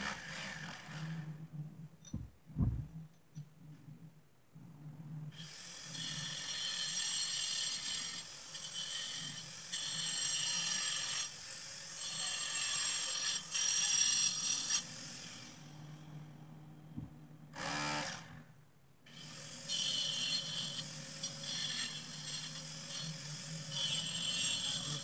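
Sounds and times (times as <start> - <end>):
angle grinder on concrete: 0.0 - 1.4, 5.3 - 16.8, 17.5 - 18.5, 19.1 - 25.0.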